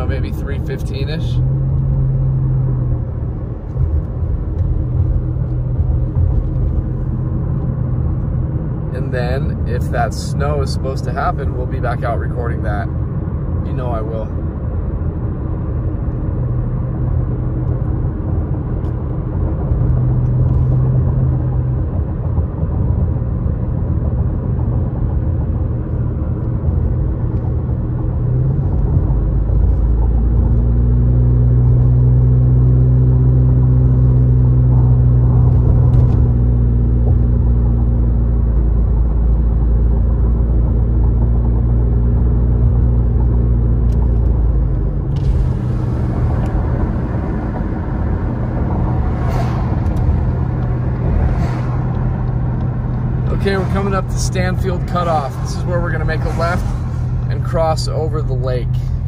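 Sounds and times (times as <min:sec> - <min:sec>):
engine and tyre rumble: 0:00.0 - 0:59.0
low drone: 0:43.9 - 0:59.0.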